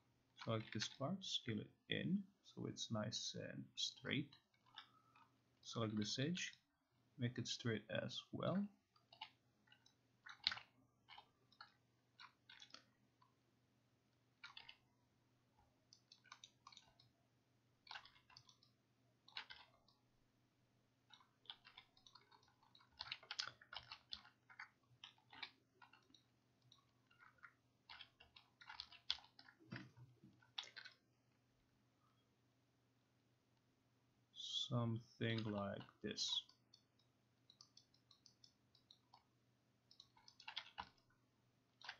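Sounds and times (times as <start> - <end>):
low electrical hum: 0.0 - 41.9
mouse and keyboard clicking: 9.0 - 12.9, 14.4 - 14.8, 15.9 - 17.1, 17.8 - 20.0, 21.1 - 31.0, 35.3 - 39.3, 39.9 - 41.1.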